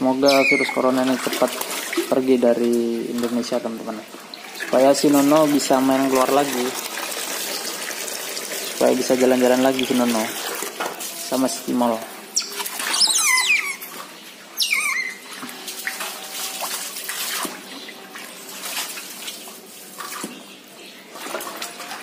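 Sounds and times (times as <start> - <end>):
high squeals falling in pitch: 0.2 - 0.8, 12.4 - 13.8, 14.6 - 15.2
water pouring from hose into basin: 0.2 - 13.1, 15.2 - 20.4, 21.0 - 22.0.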